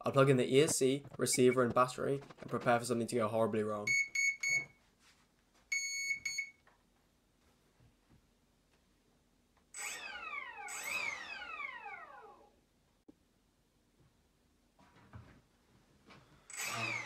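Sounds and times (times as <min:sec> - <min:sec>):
long steady beep: 0:03.9 - 0:04.7, 0:05.7 - 0:06.6.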